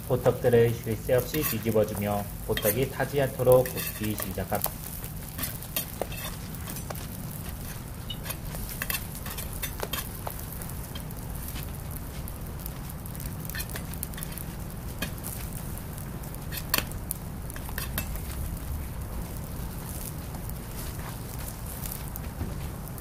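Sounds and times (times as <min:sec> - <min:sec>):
pancakes sizzling in oil: 0:00.0 - 0:23.0
steady low hum: 0:00.0 - 0:23.0.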